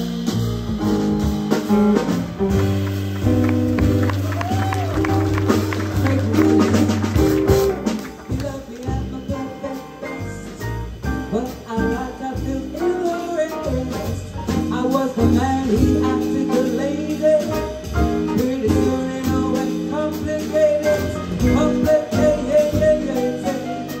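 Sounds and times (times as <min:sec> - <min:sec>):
jazz band playing: 0:00.0 - 0:24.0
woman singing: 0:08.3 - 0:10.6, 0:11.3 - 0:17.6.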